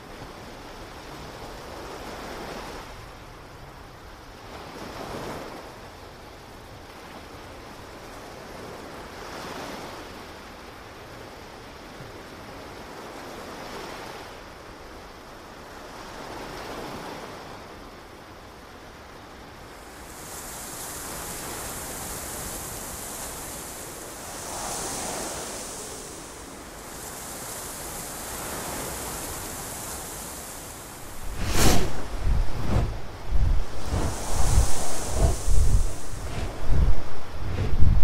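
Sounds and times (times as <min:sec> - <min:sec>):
ocean waves on a beach: 0:00.0 - 0:38.0
steady high hiss: 0:19.6 - 0:38.0.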